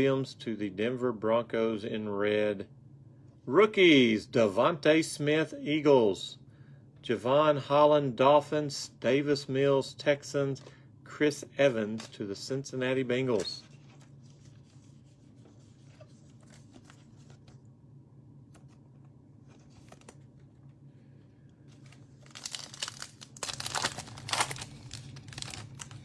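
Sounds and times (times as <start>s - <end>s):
faint handling of cards: 11.4s - 26.0s
low hum: 13.3s - 26.0s
foil wrapper ripping and crinkling: 21.7s - 26.0s.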